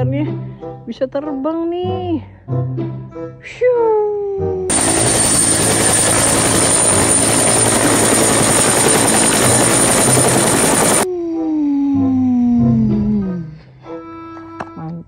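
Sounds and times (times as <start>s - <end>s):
helicopter rotor and engine: 4.7s - 11.1s.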